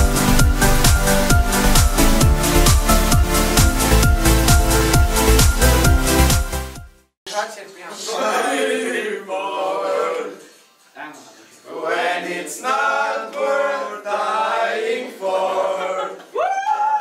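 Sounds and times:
boys singing together: 8.0s - 10.5s, 11.6s - 16.2s.

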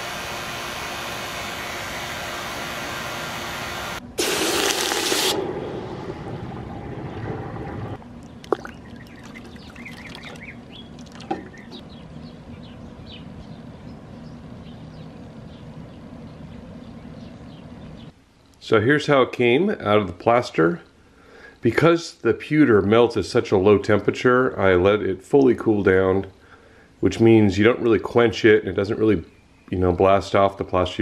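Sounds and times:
water rushing and fizzing: 4.2s - 11.7s
soft bubbling: 4.6s - 11.8s
pump running: 8.2s - 11.8s.

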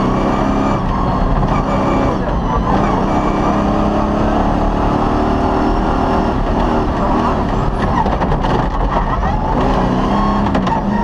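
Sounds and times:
car rattling on dirt track: 0.0s - 11.0s
rally car engine running hard: 0.0s - 11.0s
sharp clicks and knocks: 7.5s - 9.8s.

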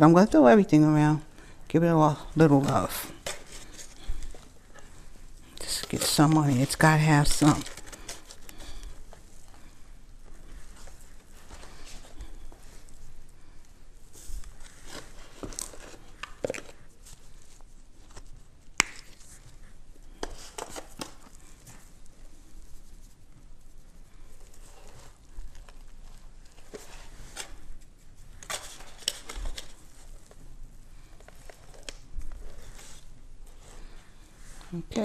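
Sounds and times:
foil crinkling: 2.2s - 9.8s, 24.3s - 33.1s.

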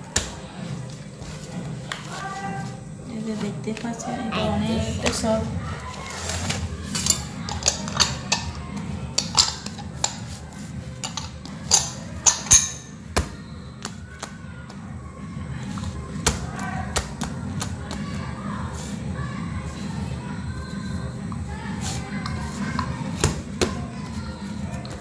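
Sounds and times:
dough slapping in metal bowl: 15.8s - 18.2s, 21.8s - 25.0s.

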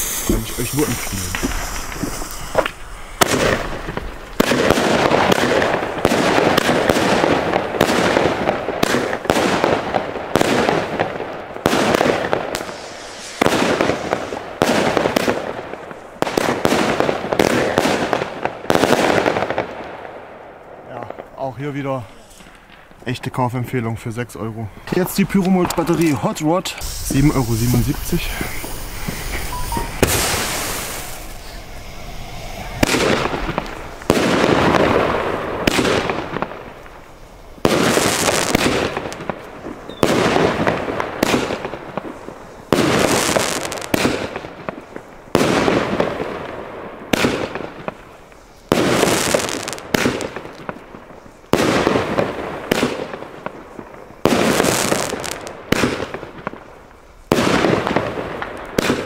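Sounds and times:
firework battery bangs: 0.0s - 19.7s, 24.9s - 37.0s, 37.6s - 46.5s.

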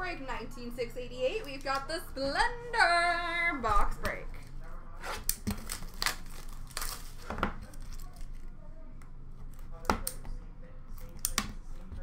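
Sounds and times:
cardboard box crinkling: 5.6s - 7.3s.

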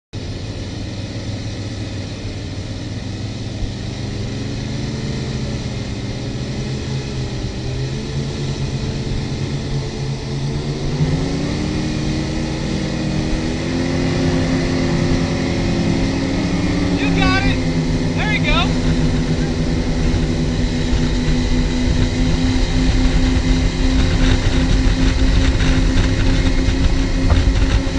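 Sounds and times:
powerboat engine running hard: 0.2s - 27.9s
rush of wind and wake: 2.8s - 27.9s.

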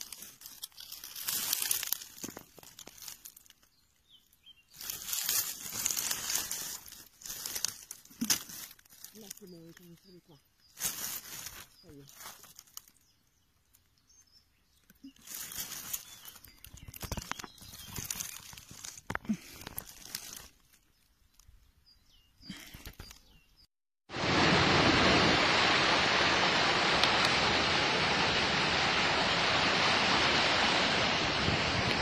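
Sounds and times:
dry leaves rustling and crunching: 0.0s - 21.6s
loud rushing noise: 24.1s - 32.0s.

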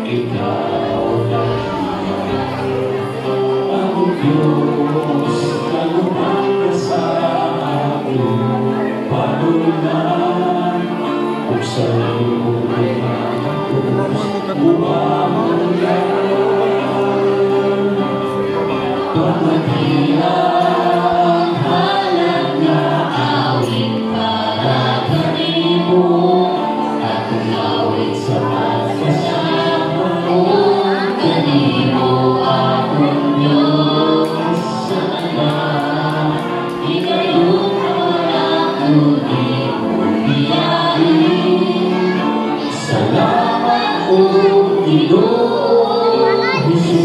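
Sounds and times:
group singing gospel song: 0.0s - 47.0s.

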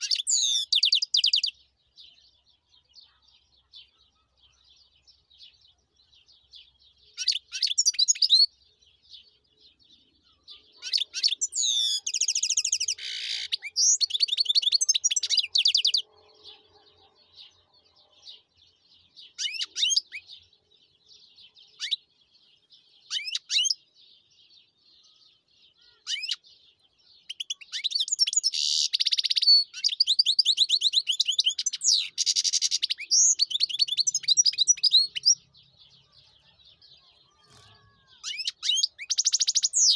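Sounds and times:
goldfinch twittering and trilling: 0.0s - 2.1s, 6.6s - 8.5s, 10.6s - 16.1s, 19.2s - 20.5s, 21.7s - 22.1s, 23.0s - 23.9s, 24.6s - 39.9s
faint bird chirping: 0.0s - 39.9s.

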